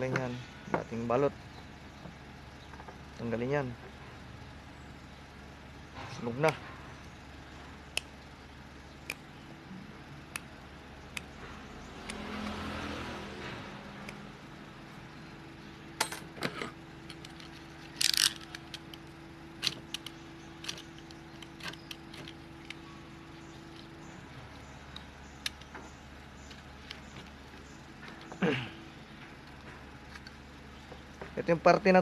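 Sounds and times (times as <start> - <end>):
steady low hum: 0.0 - 32.0
vehicle noise: 0.0 - 32.0
metallic clicks and scrapes: 16.1 - 19.0, 19.6 - 24.0.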